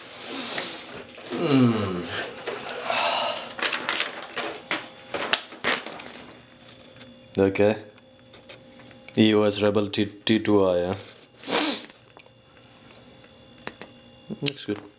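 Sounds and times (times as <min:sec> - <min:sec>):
cardboard and paper rustling: 0:00.9 - 0:07.0.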